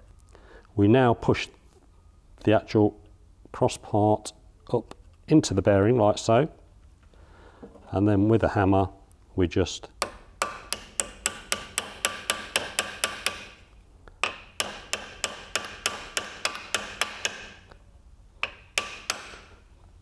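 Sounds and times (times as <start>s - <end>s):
small hammer tapping metal: 10.0s - 17.7s, 18.4s - 19.5s.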